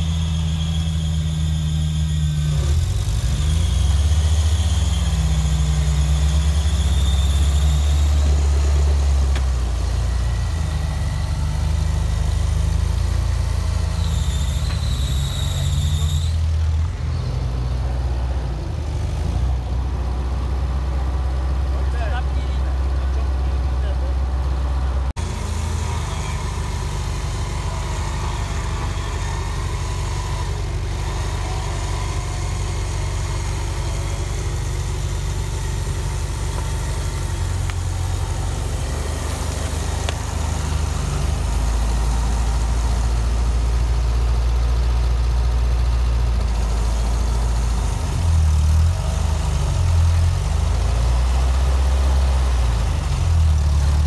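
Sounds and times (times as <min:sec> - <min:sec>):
truck engine running at low revs: 0:00.0 - 0:54.0.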